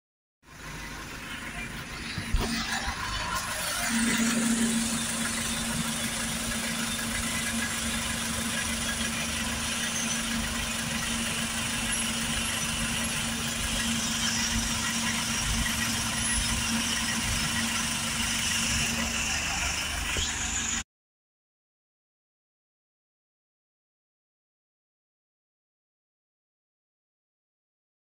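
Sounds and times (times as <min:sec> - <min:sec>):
truck engine idling: 0:00.4 - 0:20.8.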